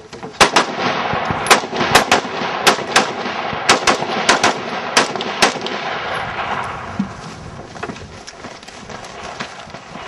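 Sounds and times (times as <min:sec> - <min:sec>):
rifle shots cracking: 0:00.3 - 0:06.9.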